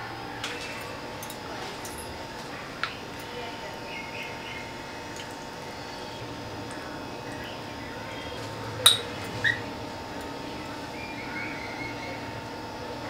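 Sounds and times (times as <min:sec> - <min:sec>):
low steady background hum: 0:00.0 - 0:13.0
clink against glass bowl: 0:08.8 - 0:09.1.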